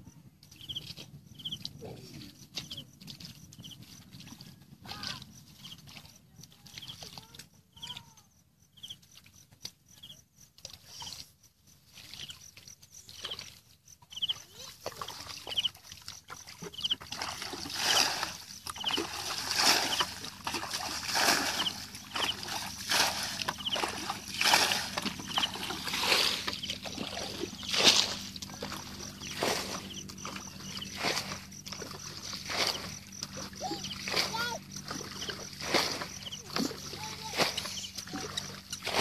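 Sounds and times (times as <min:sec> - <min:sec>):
bucket splashing water: 0:14.2 - 0:39.0.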